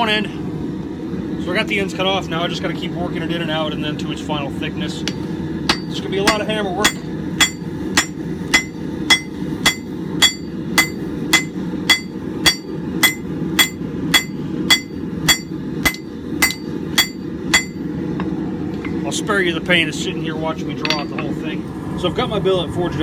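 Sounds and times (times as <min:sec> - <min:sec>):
hammer striking hot steel on anvil: 0:05.0 - 0:19.0, 0:20.6 - 0:21.4.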